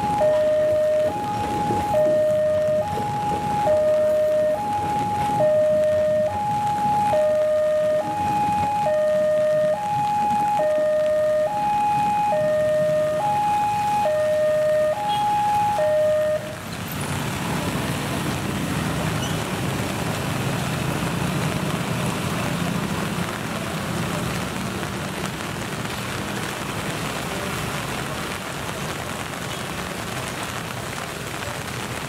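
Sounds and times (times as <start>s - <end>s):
two-tone electronic warning signal: 0.0s - 16.4s
heavy rain hissing: 0.0s - 32.0s
road traffic rumble: 0.0s - 32.0s.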